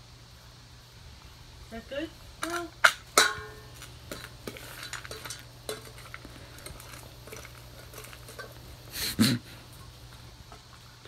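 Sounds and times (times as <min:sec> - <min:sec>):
metal bowl clank: 0:02.4 - 0:08.8
kibble rattling in metal bowl: 0:02.4 - 0:08.9.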